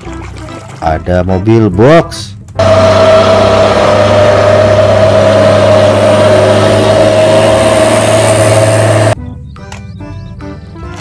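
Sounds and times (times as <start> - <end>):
steady whine: 2.6 - 9.2
truck engine running: 2.6 - 9.2.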